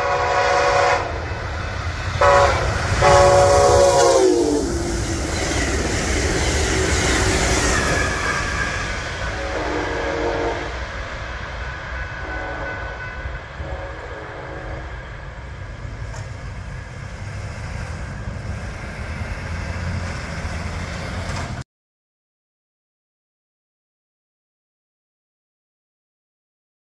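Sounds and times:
distant train horn: 0.0 - 5.6, 6.8 - 15.8
road traffic: 0.0 - 21.6
train rumble: 0.0 - 21.6.

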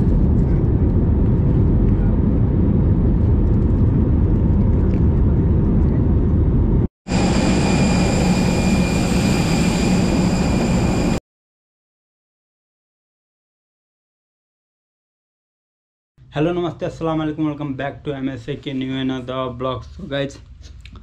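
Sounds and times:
airliner cabin rumble: 0.0 - 11.2
jet engine whine: 0.0 - 11.2.

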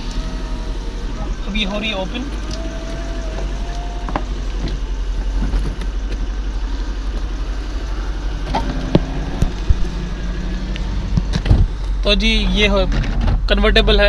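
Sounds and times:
car roof mechanism running: 0.0 - 12.1.

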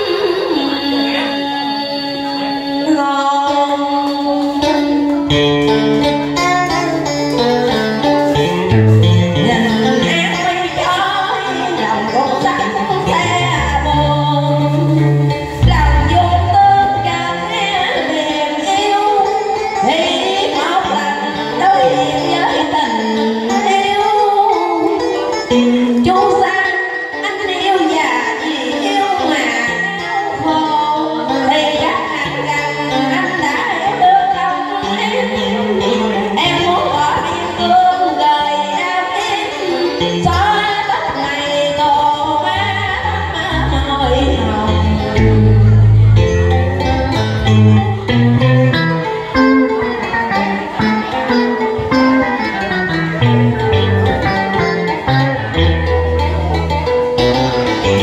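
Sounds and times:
woman singing into microphone: 0.0 - 55.6
instrumental backing music: 0.0 - 58.0
deep bass line: 8.4 - 9.7, 13.0 - 17.6, 42.6 - 49.7, 52.0 - 58.0.

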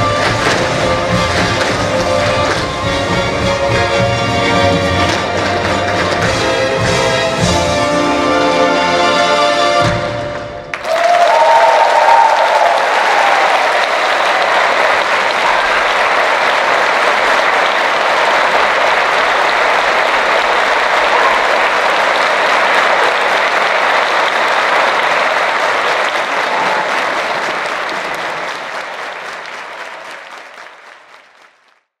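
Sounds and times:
audience applauding: 0.0 - 6.9, 10.2 - 32.0.

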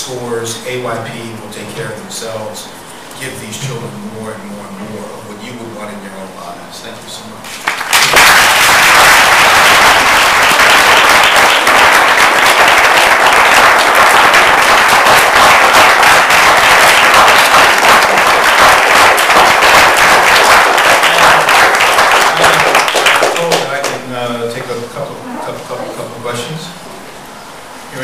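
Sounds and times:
audience applauding: 7.5 - 24.0.

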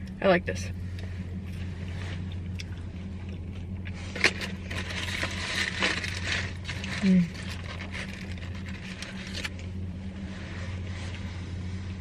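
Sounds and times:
low steady hum: 0.0 - 12.0
paper wrapper crinkling: 4.1 - 9.7.

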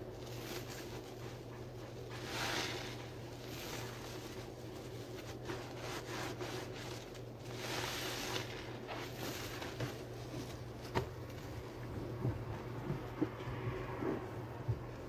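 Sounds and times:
steady low hum: 0.0 - 15.0
sponge squelching: 0.1 - 10.4.

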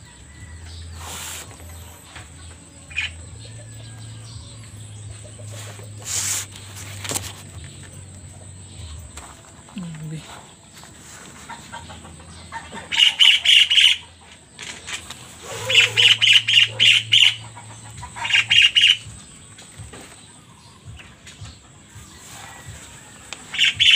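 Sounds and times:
high rapid animal chirps: 0.7 - 3.4, 4.9 - 7.2, 12.5 - 14.2, 15.2 - 19.2, 23.5 - 23.9.

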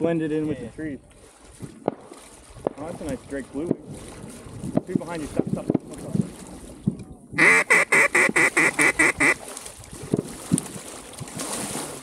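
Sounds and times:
duck call quacks: 7.4 - 9.4.

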